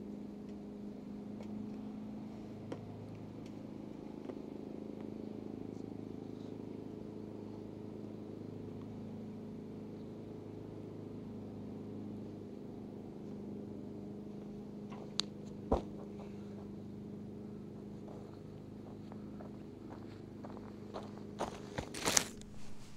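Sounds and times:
steady low hum: 0.0 - 22.9
feet landing with a thud: 15.0 - 16.4.

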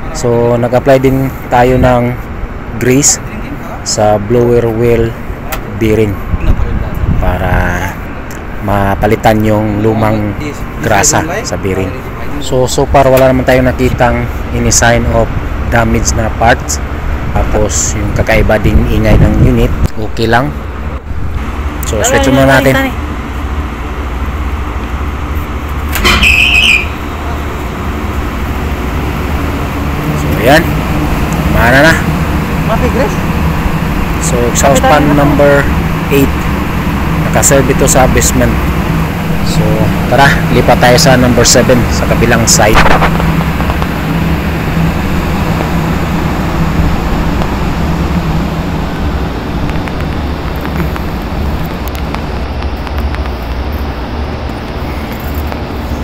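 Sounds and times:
exhaust fan humming: 0.0 - 56.0
short sharp high-pitched sound: 26.0 - 27.0.

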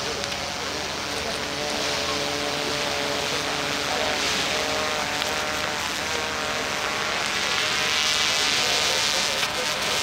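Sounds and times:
rushing hiss of flames: 0.0 - 10.0.

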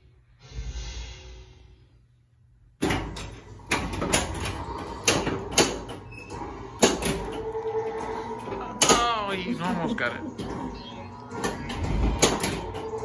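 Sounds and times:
pinball machine game sounds: 2.8 - 13.0
pinball flippers clacking: 6.7 - 9.3.

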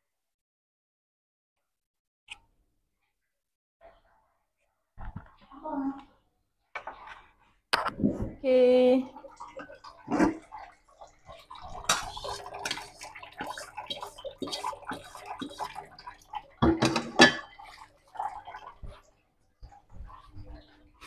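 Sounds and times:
kitchenware clattering: 11.7 - 13.5, 16.6 - 17.6.

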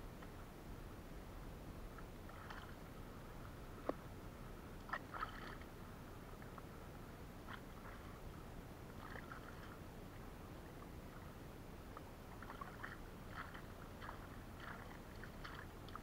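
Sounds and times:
steady low background noise: 0.0 - 16.0
water splashing and dripping: 12.4 - 16.0.

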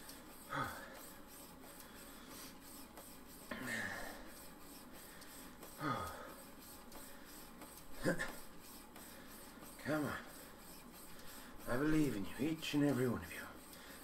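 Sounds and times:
man breathing out heavily: 0.5 - 1.2, 3.5 - 4.4, 5.0 - 6.4.

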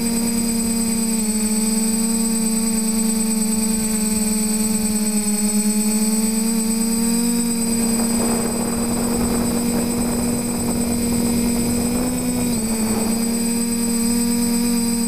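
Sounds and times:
quadcopter motors whining: 0.0 - 15.0
wind noise: 7.5 - 14.7.

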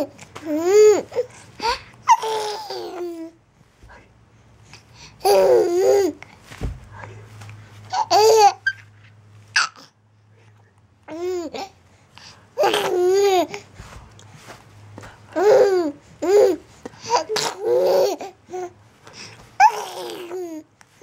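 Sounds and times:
baby laughing and babbling: 0.0 - 3.4, 5.2 - 6.2, 7.8 - 8.9, 9.6 - 10.0, 11.0 - 11.8, 12.6 - 13.8, 15.2 - 18.8, 19.6 - 20.7.

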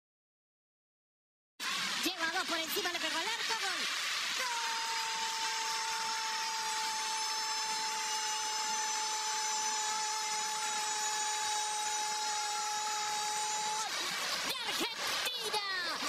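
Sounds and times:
commentator's long goal cry: 4.4 - 6.9.

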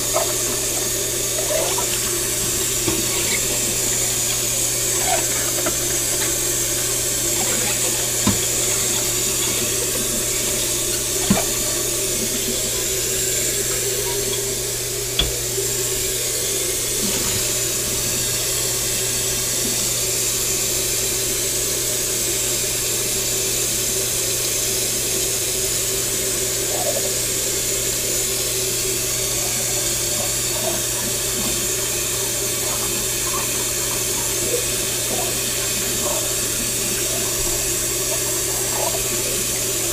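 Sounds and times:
dishes scrubbed by hand: 0.0 - 14.5
tap running into steel sink: 0.1 - 6.6, 7.4 - 12.6, 15.1 - 15.5.

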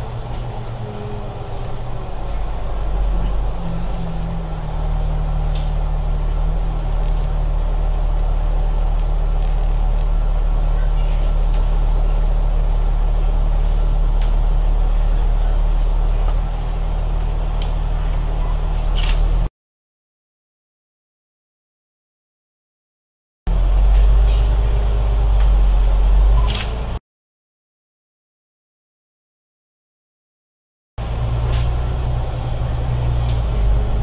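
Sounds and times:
bus engine drone: 0.0 - 19.5, 23.5 - 27.0, 31.0 - 34.0
road noise: 0.0 - 19.5, 23.5 - 27.0, 31.0 - 34.0.

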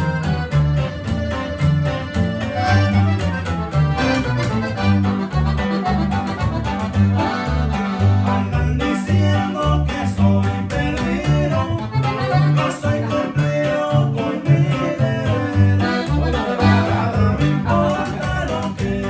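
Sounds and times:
accordion: 0.0 - 19.0
bajo sexto strumming: 0.0 - 19.0
plucked upright bass: 0.0 - 19.0
man singing: 8.2 - 19.0.

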